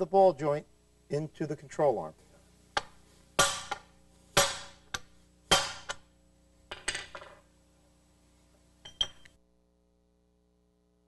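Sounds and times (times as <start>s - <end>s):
hammer striking steel plate: 2.8s - 6.0s.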